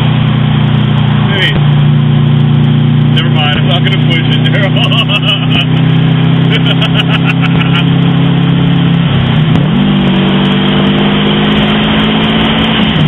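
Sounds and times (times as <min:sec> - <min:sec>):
car engine from inside cabin: 0:00.0 - 0:13.0
road and wind noise: 0:00.0 - 0:13.0.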